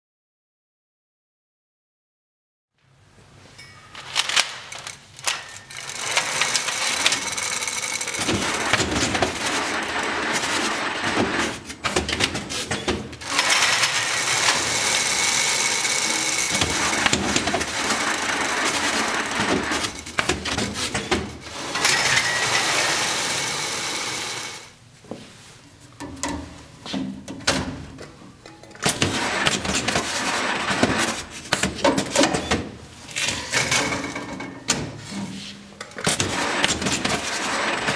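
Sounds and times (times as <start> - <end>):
banding machine whirring: 4.2 - 24.7.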